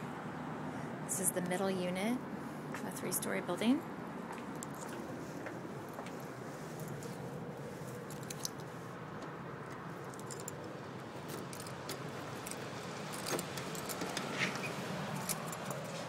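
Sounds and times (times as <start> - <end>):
steady background noise: 0.0 - 16.0
keys jangling: 7.9 - 8.8, 9.9 - 16.0.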